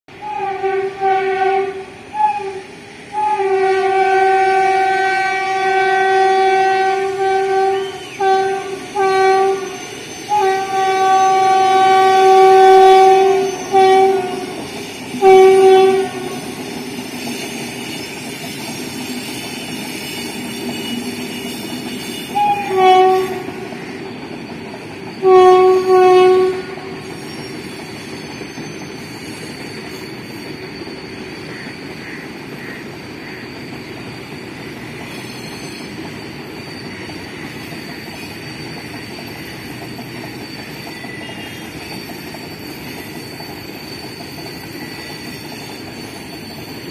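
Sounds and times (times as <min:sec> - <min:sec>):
freight train rumble and clatter: 0:00.1 - 0:46.9
locomotive horn blasts: 0:00.2 - 0:14.6, 0:15.2 - 0:16.6, 0:22.1 - 0:23.7, 0:25.2 - 0:27.0.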